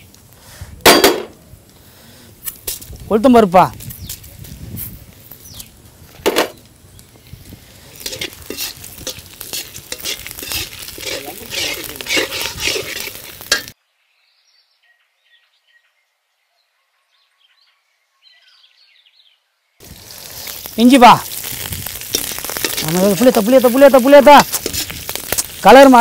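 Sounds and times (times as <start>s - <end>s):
seeds sizzling in hot oil: 1.8s - 13.8s, 19.8s - 26.0s
metal ladle scraping a pan: 7.9s - 13.8s, 21.5s - 23.0s.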